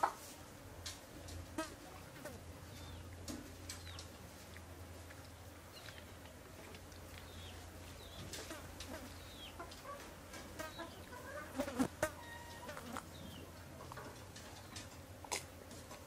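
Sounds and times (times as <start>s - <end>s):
low steady hum: 0.3s - 16.0s
hens clucking: 7.3s - 16.0s.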